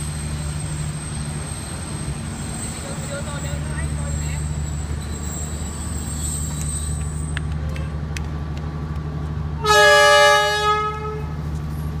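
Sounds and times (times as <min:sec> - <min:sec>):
low rumble of train running: 0:00.0 - 0:12.0
diesel train horn: 0:09.6 - 0:11.5.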